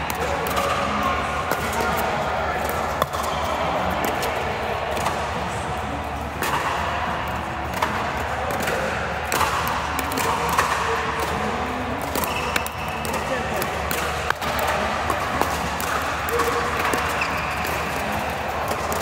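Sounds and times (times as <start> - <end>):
ball bouncing: 6.4 - 19.0.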